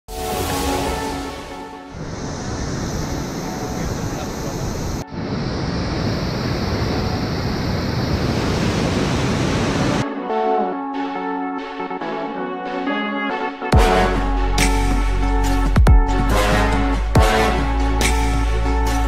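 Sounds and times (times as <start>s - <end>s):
music: 0.1s - 5.2s, 10.0s - 19.0s.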